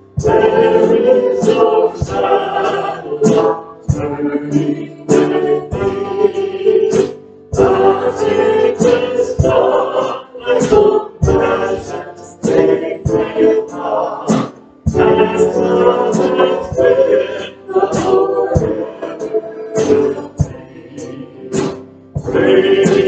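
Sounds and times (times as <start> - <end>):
group singing a worship song: 0.0 - 23.0.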